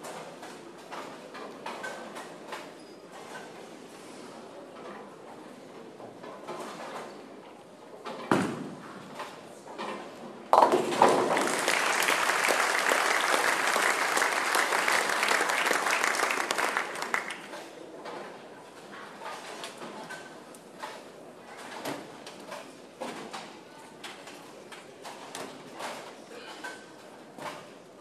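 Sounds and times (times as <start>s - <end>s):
bowling ball hitting pins: 8.2s - 9.0s, 10.5s - 12.6s
crowd applauding and cheering: 11.1s - 17.6s.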